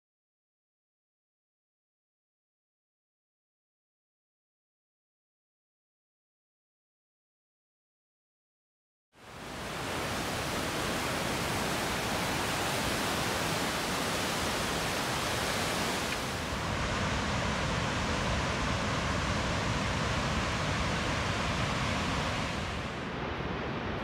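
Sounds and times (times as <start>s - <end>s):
waterfall and rapids roaring: 9.2s - 24.0s.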